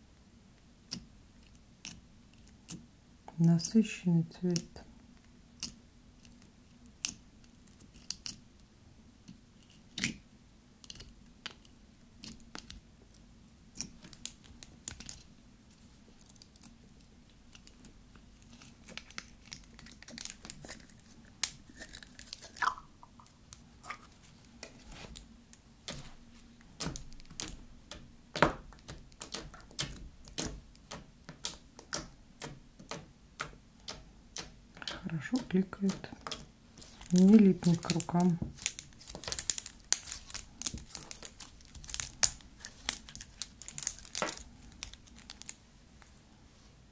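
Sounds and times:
slime squishing with clicks: 0.5s - 46.2s.

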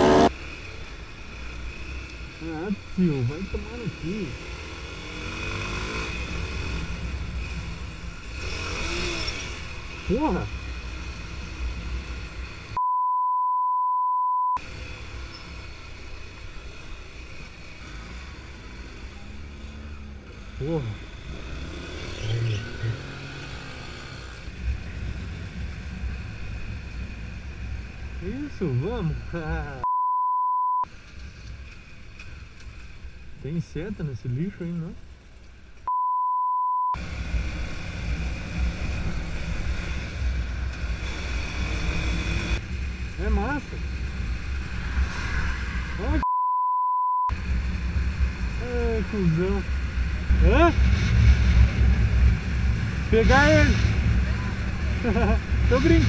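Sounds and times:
road noise: 0.0s - 12.9s, 14.6s - 56.0s
censor bleep: 12.8s - 14.6s, 29.8s - 30.8s, 35.9s - 37.0s, 46.2s - 47.3s.

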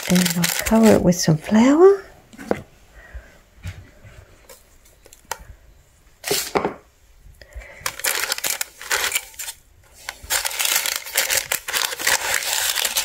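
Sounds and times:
baking parchment crinkling: 0.0s - 1.8s, 7.6s - 13.0s.

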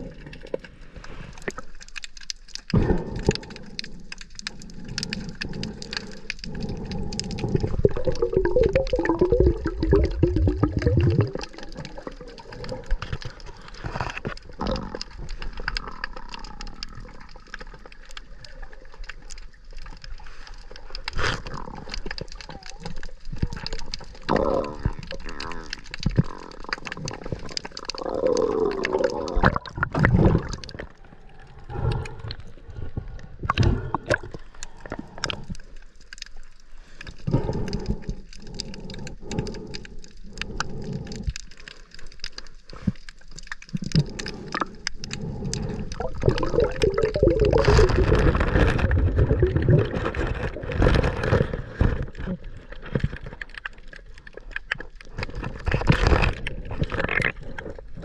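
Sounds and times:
water sloshing and gurgling: 0.0s - 58.0s.

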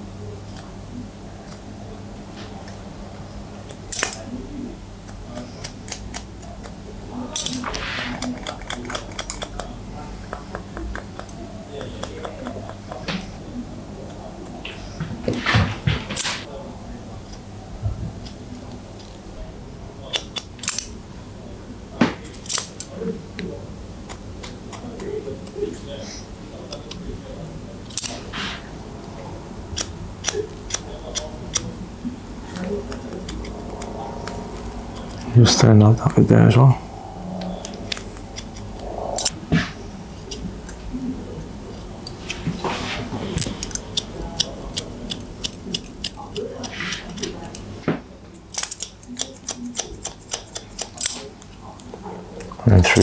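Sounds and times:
scissors snipping hair: 5.0s - 6.8s, 7.4s - 13.2s, 29.8s - 31.7s, 43.4s - 47.7s, 48.3s - 52.5s.

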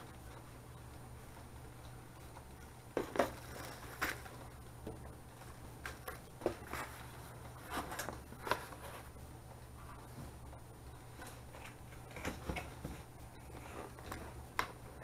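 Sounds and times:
cardboard and plastic wrap rustling: 2.9s - 4.5s, 5.3s - 9.2s.

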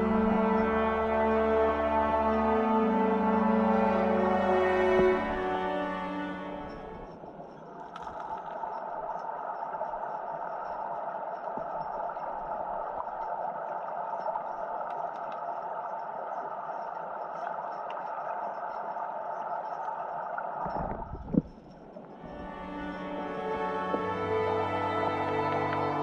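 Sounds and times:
muffled underwater river rush: 4.3s - 24.8s
faint ticks: 6.2s - 23.1s.

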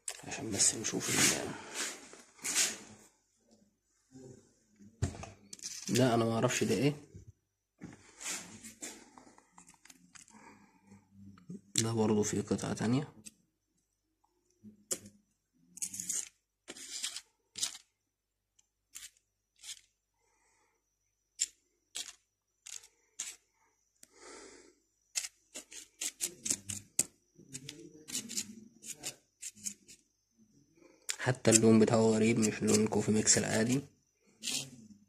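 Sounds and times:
metal spoon scratching powder on paper: 15.8s - 17.9s, 18.9s - 19.9s, 21.4s - 23.5s, 25.1s - 30.1s, 31.3s - 33.8s, 34.4s - 34.8s.

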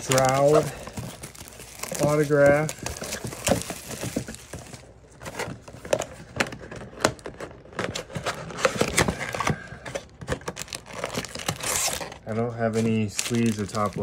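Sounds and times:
plastic shrink wrap crinkling: 0.0s - 5.0s, 10.4s - 14.0s
cardboard crackles and taps: 0.0s - 11.6s
cardboard box opening: 0.0s - 14.0s.

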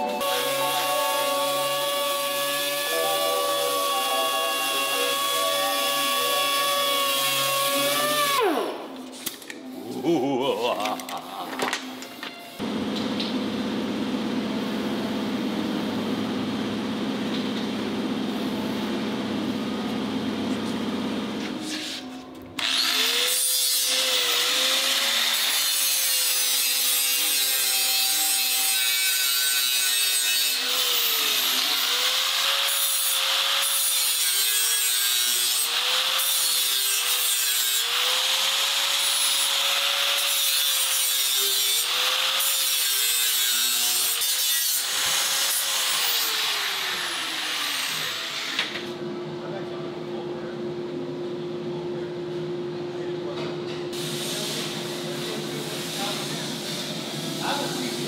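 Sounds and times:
angle grinder grinding metal: 0.0s - 12.6s, 22.6s - 48.9s
steady machine hum: 12.6s - 21.5s, 48.9s - 53.3s.

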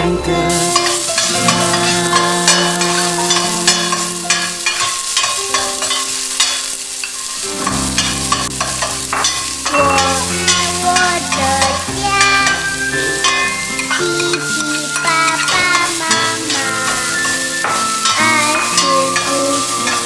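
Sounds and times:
food sizzling: 0.0s - 20.0s
instrumental background music: 0.0s - 20.0s
metal spatula scraping a pan: 0.5s - 20.0s.

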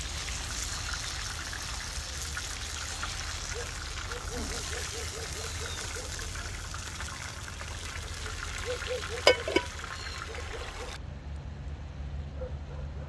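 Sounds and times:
oil sizzling in a frying pan: 0.0s - 11.0s
metal tongs clacking: 9.2s - 9.9s.

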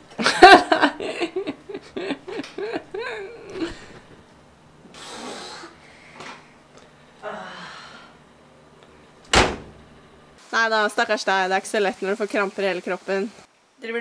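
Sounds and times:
person laughing: 0.2s - 4.2s.

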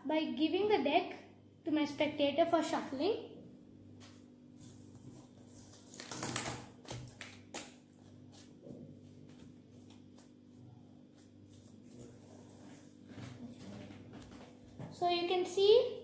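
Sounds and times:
playing cards shuffled by hand: 4.9s - 8.6s, 9.2s - 10.5s.

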